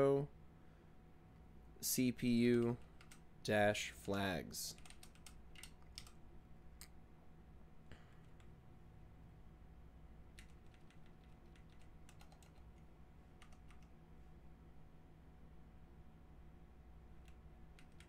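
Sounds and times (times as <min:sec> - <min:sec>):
low steady hum: 0:00.0 - 0:18.0
faint keystrokes on keyboard: 0:02.6 - 0:03.2, 0:04.7 - 0:06.2, 0:10.3 - 0:14.0, 0:17.2 - 0:18.0.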